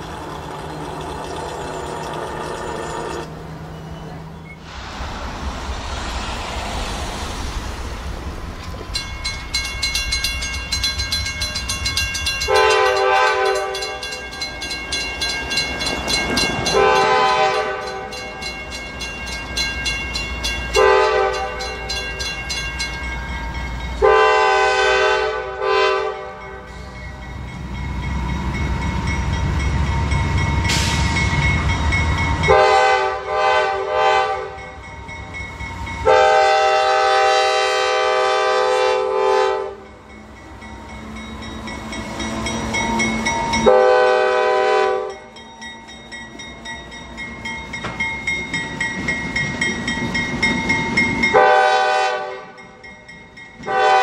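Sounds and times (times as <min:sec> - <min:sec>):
crossing bell ringing: 0:00.0 - 0:04.5, 0:08.8 - 0:37.1, 0:39.3 - 0:54.0
diesel engines rumbling: 0:00.0 - 0:18.0, 0:26.7 - 0:33.5
train air horn blasts: 0:12.5 - 0:14.2, 0:16.7 - 0:18.2, 0:20.8 - 0:21.7, 0:24.0 - 0:26.9, 0:32.5 - 0:34.7, 0:36.0 - 0:39.8, 0:43.6 - 0:45.2, 0:51.3 - 0:52.6, 0:53.7 - 0:54.0.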